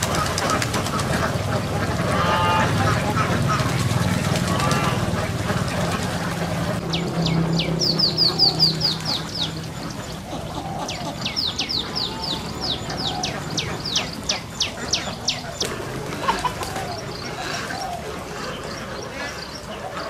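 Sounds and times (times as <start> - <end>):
small bird calling: 6.8 - 20.0.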